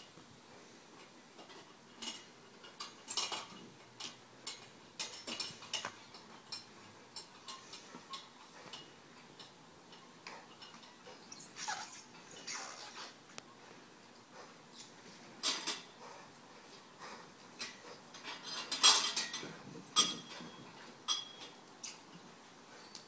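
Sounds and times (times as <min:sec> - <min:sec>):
metal hardware clinking and knocking: 0:01.4 - 0:09.5, 0:17.6 - 0:22.1.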